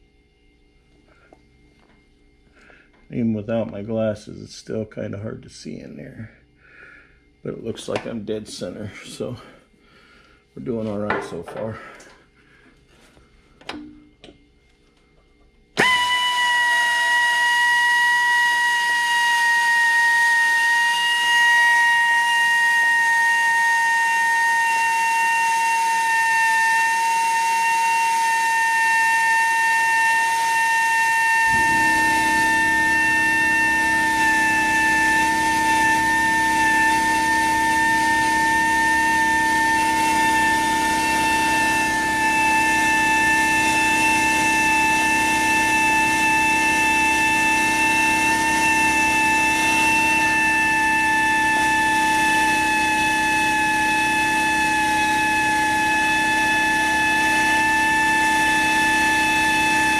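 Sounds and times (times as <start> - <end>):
drill bit grinding metal: 15.8 - 59.9
power drill whining: 15.8 - 59.9.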